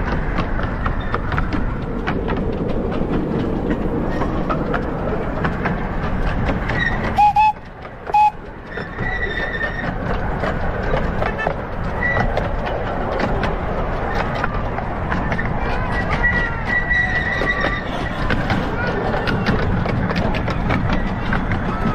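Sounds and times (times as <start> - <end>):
wheels clicking over rail joints: 0.0 - 21.9
steam whistle toots: 7.2 - 8.4.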